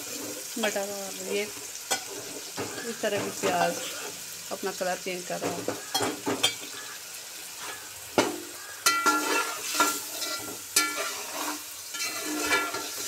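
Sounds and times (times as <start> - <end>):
food sizzling: 0.0 - 13.0
metal spatula scraping pot: 1.9 - 4.3, 5.4 - 13.0.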